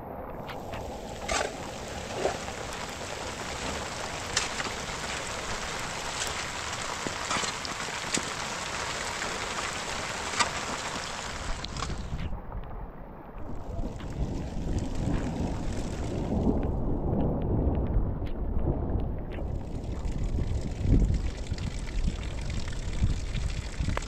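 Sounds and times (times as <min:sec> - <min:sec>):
heavy rain: 0:00.4 - 0:12.2, 0:13.4 - 0:18.1.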